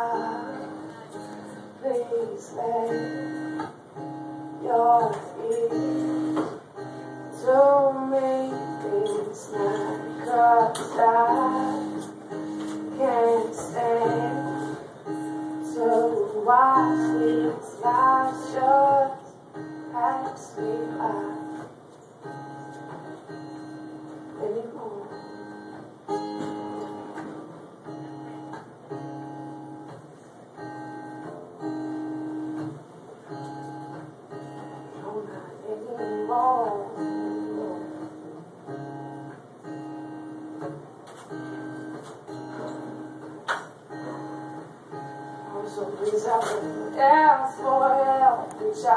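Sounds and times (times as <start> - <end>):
woman singing: 0.0 - 3.7, 4.5 - 21.6, 24.3 - 25.7, 34.8 - 38.2, 45.2 - 48.9
acoustic guitar chords: 0.0 - 48.9.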